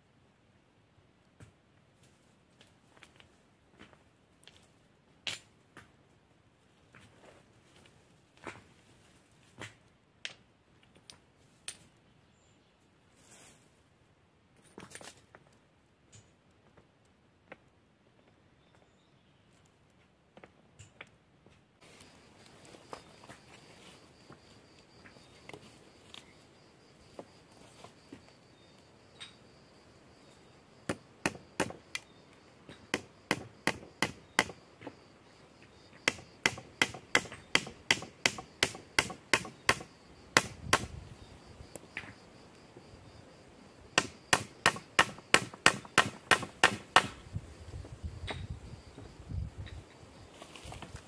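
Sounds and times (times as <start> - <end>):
hammer knocking on wooden stake: 30.9 - 32.0, 32.8 - 34.6, 36.0 - 40.9, 44.0 - 47.2.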